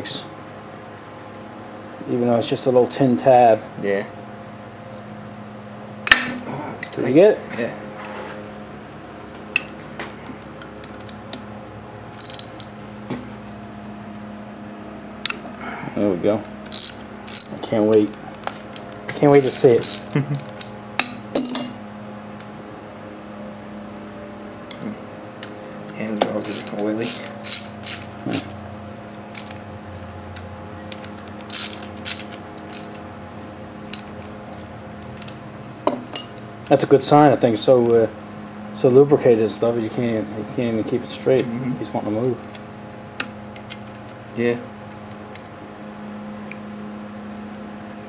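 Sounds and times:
steady hum: 0:00.0 - 0:48.0
ratchet wrench clicking: 0:12.2 - 0:12.7, 0:16.7 - 0:20.7, 0:26.4 - 0:28.5, 0:29.3 - 0:29.6, 0:30.9 - 0:33.0.

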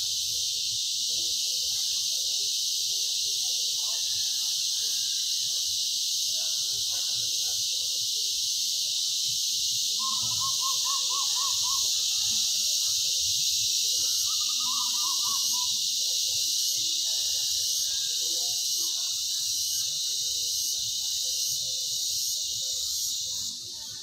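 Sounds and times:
insects droning in chorus: 0:00.0 - 0:24.0
rapid repeated chirps: 0:09.0 - 0:16.7.

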